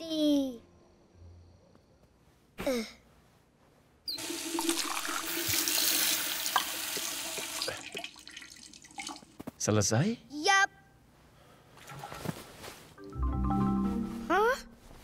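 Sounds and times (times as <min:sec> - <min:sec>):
tap water running into basin: 0:04.2 - 0:09.4.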